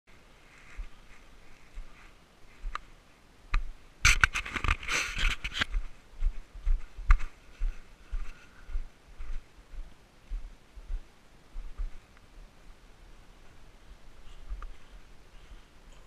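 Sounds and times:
footsteps crunching on scree: 3.6s - 11.0s.

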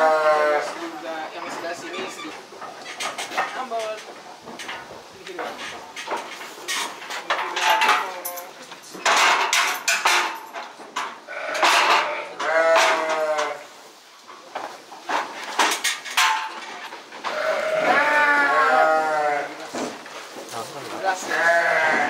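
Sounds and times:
sheep bleating: 0.0s - 0.8s, 11.3s - 13.7s, 17.3s - 19.7s, 21.0s - 22.0s
metal crate clanking: 9.0s - 13.3s, 15.1s - 18.1s.

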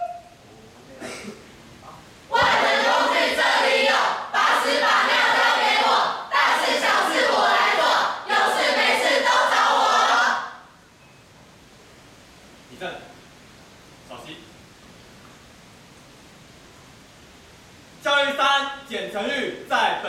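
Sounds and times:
group chanting a cheer: 2.3s - 10.7s.

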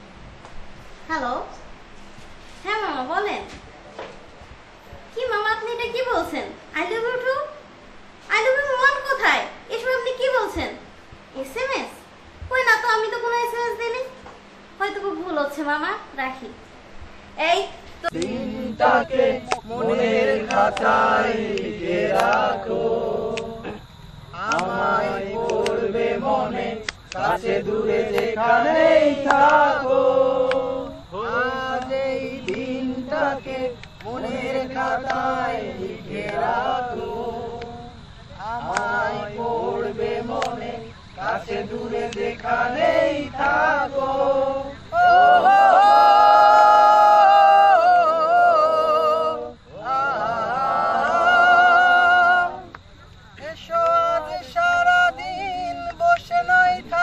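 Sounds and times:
group of voices singing: 18.0s - 57.0s.

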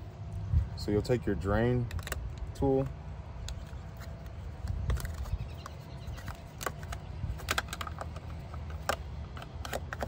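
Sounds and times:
hard plastic clicks: 1.8s - 2.5s, 4.6s - 10.0s.

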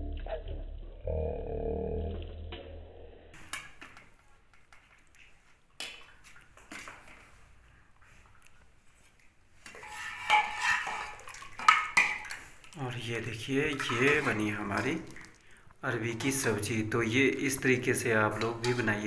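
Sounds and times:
spoon scraping steel plate: 9.7s - 12.2s
metal cookware clattering: 9.7s - 12.4s, 13.8s - 15.0s, 18.2s - 19.0s.

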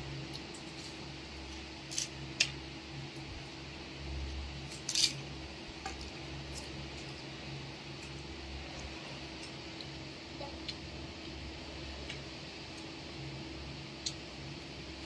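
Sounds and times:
steady low hum: 0.0s - 15.0s
crunching fried wafers: 0.3s - 2.6s, 4.7s - 7.3s.

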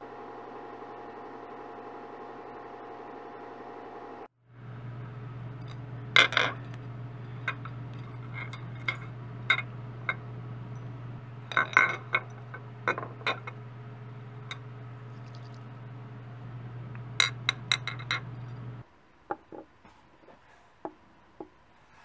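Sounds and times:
steady low hum: 0.0s - 21.9s
metal parts clinking on glass: 7.4s - 9.7s, 11.4s - 13.5s, 17.2s - 18.3s.

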